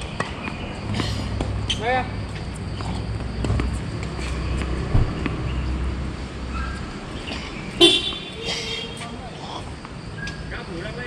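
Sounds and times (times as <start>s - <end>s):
dull thump: 4.9s - 5.4s.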